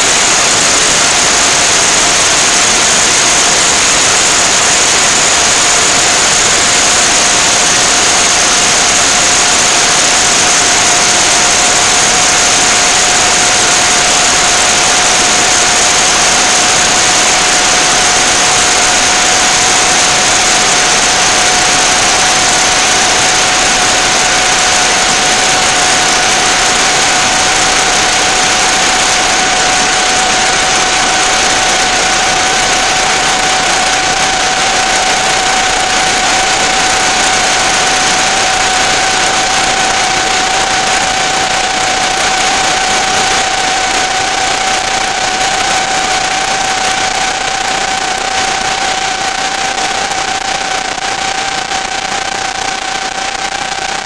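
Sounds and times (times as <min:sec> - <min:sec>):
high whining tones: 0:00.0 - 0:54.0
loud steady hiss: 0:00.0 - 0:54.0.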